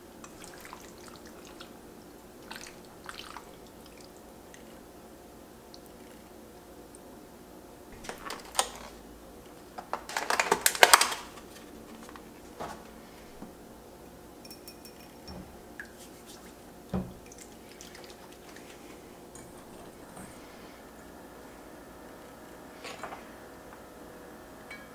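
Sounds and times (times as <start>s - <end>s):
food clattering in metal bowl: 9.8s - 12.8s.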